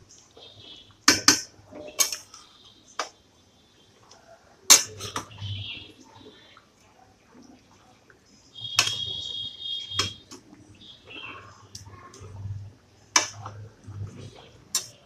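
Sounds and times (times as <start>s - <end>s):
soft stirring: 3.8s - 15.0s.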